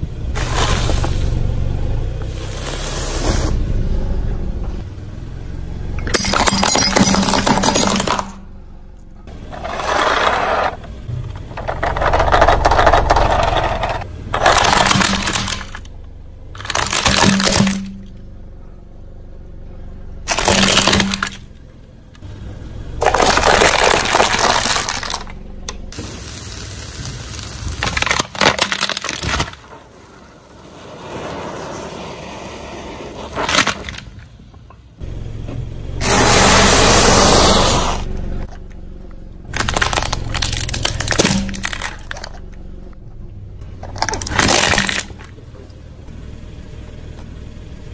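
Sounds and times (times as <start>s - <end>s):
low rumble: 3.3s - 27.8s
tyres crushing brittle objects: 9.6s - 15.9s, 16.6s - 18.1s, 20.3s - 21.4s, 23.0s - 25.4s, 26.4s - 29.8s, 33.4s - 34.1s, 39.5s - 42.5s, 43.8s - 45.3s.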